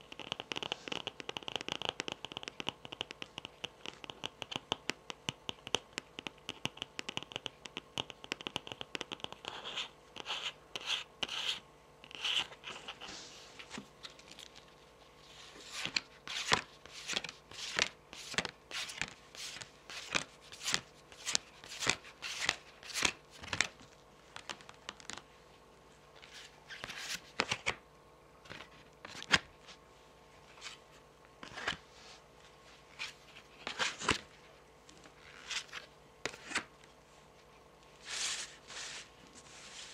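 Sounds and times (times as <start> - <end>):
fingernails tapping on cards: 0.0 - 11.4
cards sliding and laid down: 31.4 - 32.2, 35.3 - 36.7, 38.0 - 39.9.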